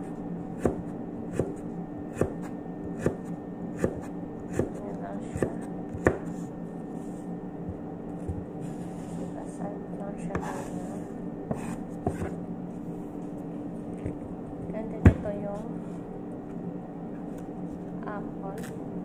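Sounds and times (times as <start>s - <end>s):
steady low hum: 0.0s - 19.0s
knife chopping on cutting board: 0.6s - 6.4s, 11.5s - 12.4s.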